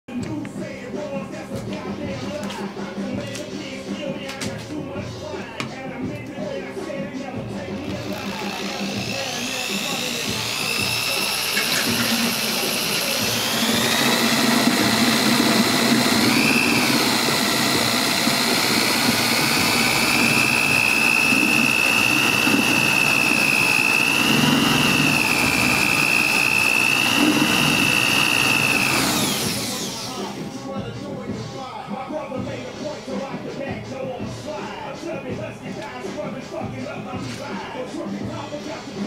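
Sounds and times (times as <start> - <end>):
drill motor whining: 7.7 - 30.6
liquid churning and foaming: 7.9 - 30.0.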